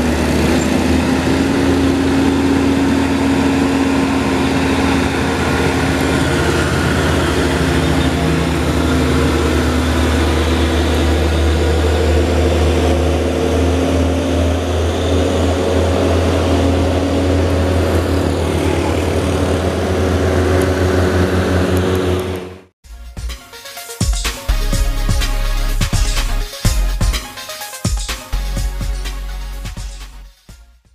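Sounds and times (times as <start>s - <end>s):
diesel truck engine droning: 0.0s - 22.7s.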